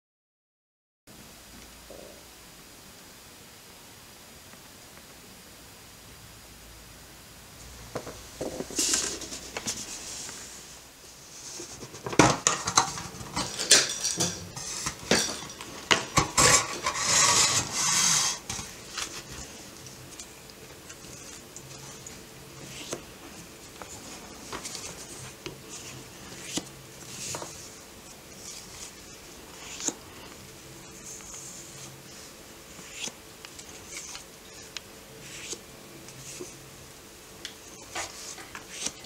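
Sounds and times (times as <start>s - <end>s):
postcards sliding and rustling: 8.0s - 36.6s, 37.5s - 39.0s
metal tin lid clinking and scraping: 12.5s - 18.6s.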